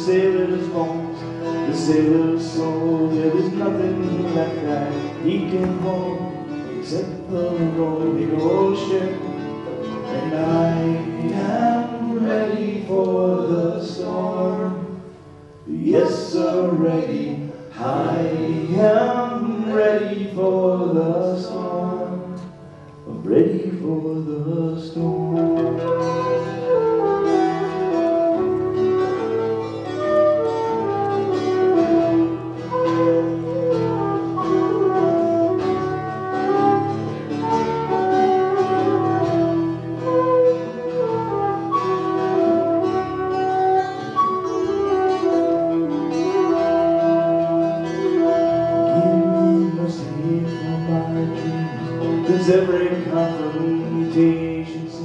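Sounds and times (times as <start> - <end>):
guitar accompaniment: 0.0 - 55.0
whistle playing a lively melody: 25.3 - 49.8.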